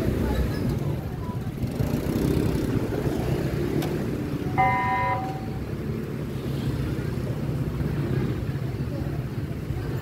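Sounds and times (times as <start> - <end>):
street traffic rumble: 0.0 - 10.0
vehicle horn honk: 4.6 - 5.6.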